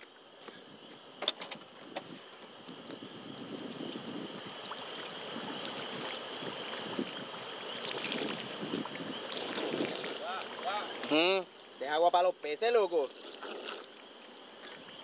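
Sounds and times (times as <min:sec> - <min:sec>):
man drinking: 0:07.9 - 0:10.3, 0:13.1 - 0:14.0.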